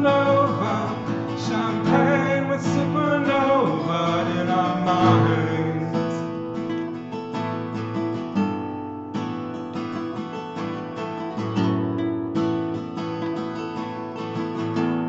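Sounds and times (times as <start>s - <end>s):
person singing: 0.0s - 6.4s
strummed acoustic guitar: 0.0s - 15.0s.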